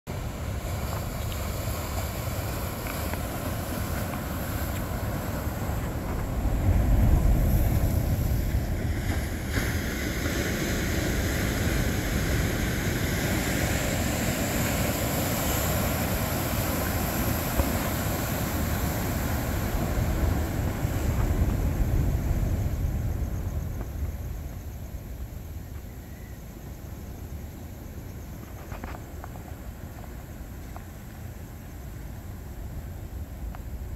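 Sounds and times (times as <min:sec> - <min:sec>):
wind buffeting microphone: 0:00.1 - 0:25.7
ocean surf: 0:00.1 - 0:33.9.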